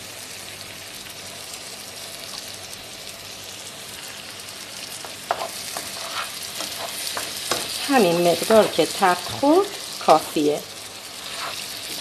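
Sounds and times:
vegetables sizzling in oil: 0.0s - 12.0s
spatula scraping a pan: 5.0s - 10.2s, 11.1s - 12.0s.

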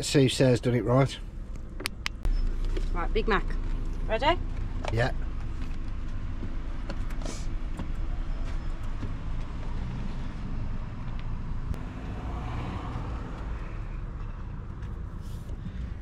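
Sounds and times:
car traffic rumble: 0.0s - 16.0s.

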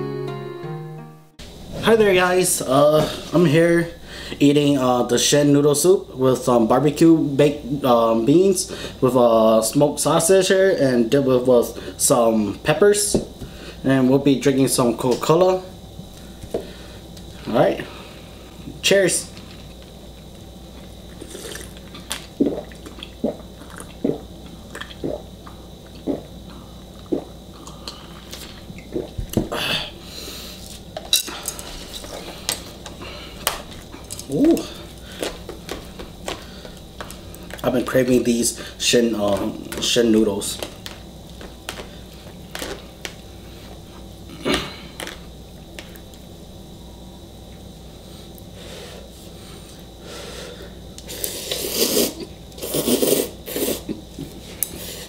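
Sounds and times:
noodles being slurped: 21.2s - 24.2s, 51.1s - 53.9s.

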